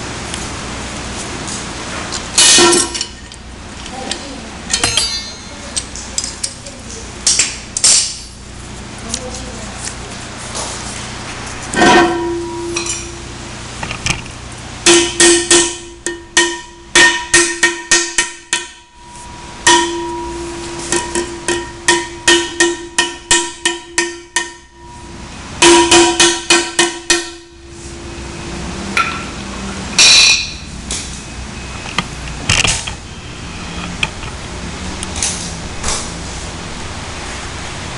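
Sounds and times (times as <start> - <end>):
metallic ringing tone: 4.7 - 6.0, 11.8 - 13.4, 14.8 - 31.8.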